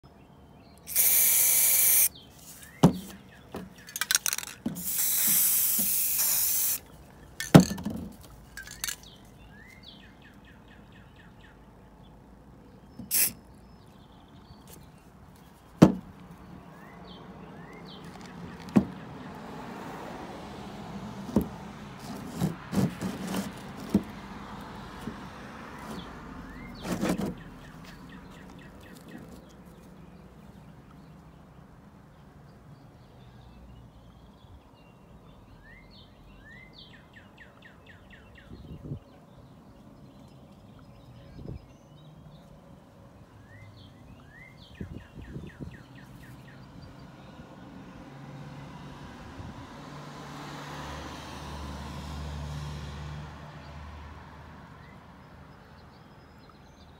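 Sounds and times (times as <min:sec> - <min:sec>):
spray can hissing: 0:00.9 - 0:02.1, 0:04.0 - 0:06.8, 0:13.1 - 0:13.4
knocks and clicks handling can: 0:02.8 - 0:06.4, 0:07.4 - 0:09.2, 0:26.8 - 0:27.5.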